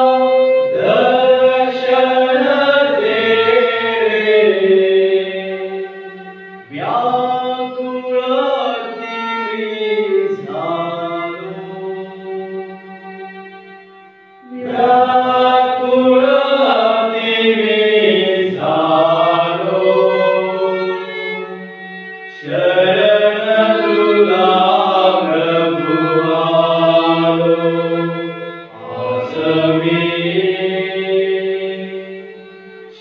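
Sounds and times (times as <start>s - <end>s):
men singing a hymn: 0.0s - 12.5s, 14.5s - 21.4s, 22.3s - 33.0s
violin accompaniment: 0.0s - 33.0s.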